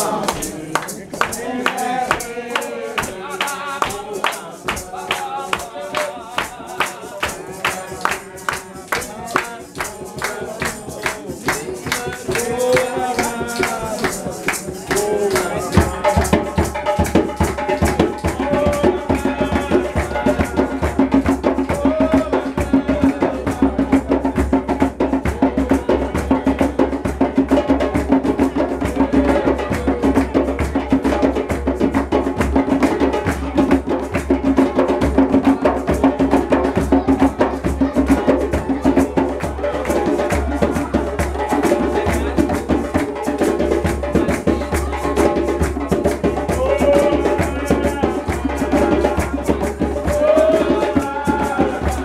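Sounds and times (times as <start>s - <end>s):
hand drum beat: 0.0s - 52.0s
people singing: 0.0s - 52.0s.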